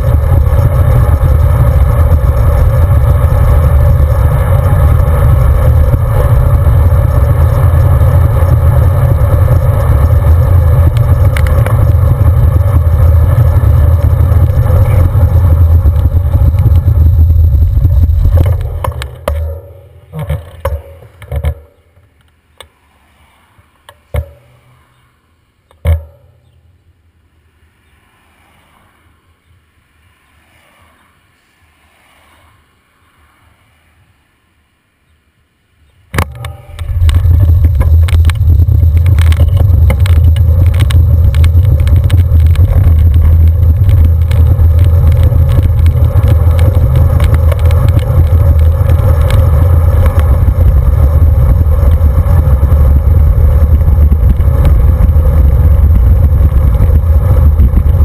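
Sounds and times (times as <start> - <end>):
bicycle knocks and rattles: 0.0 - 22.7, 23.9 - 24.8, 25.7 - 26.6, 36.2 - 58.0
low road rumble: 0.0 - 58.0
wind buffeting microphone: 36.3 - 58.0.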